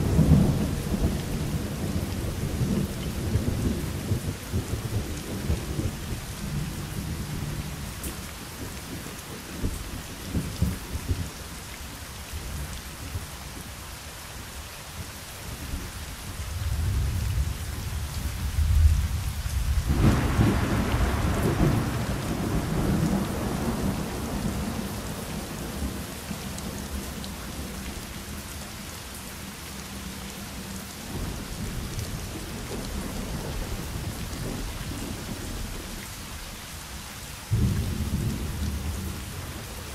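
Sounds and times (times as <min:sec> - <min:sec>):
steady rain: 0:00.0 - 0:39.9
rolling thunder: 0:16.6 - 0:27.1, 0:37.5 - 0:39.9
loud thunderclap: 0:19.8 - 0:24.9, 0:37.5 - 0:39.2.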